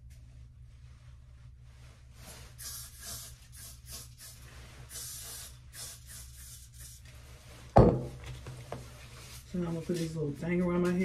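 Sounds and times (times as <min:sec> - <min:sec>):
aerosol spray hissing: 0:02.3 - 0:07.1.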